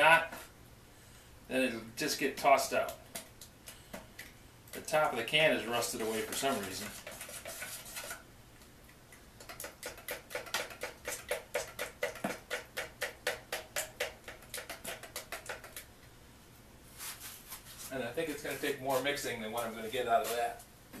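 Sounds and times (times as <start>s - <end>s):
stick stirring paint in metal can: 4.7s - 8.2s, 9.4s - 15.9s.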